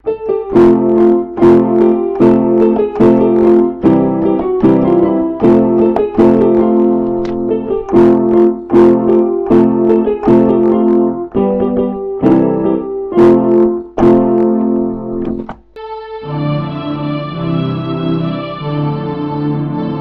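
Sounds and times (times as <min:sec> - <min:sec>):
piano chords: 0:00.0 - 0:20.0.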